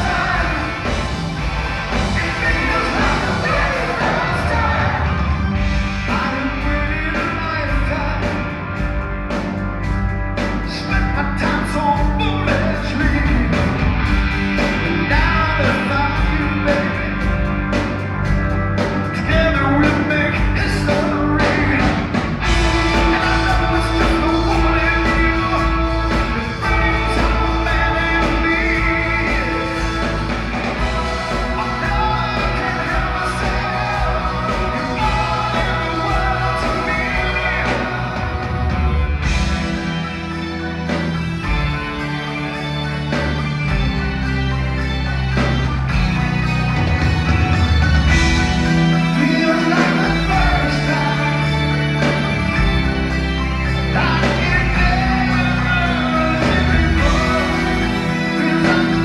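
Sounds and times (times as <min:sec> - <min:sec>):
lead vocal singing: 0:00.0 - 0:08.4, 0:19.2 - 0:40.3, 0:48.1 - 0:53.1, 0:53.8 - 0:59.0
live rock band playing: 0:00.0 - 0:59.0.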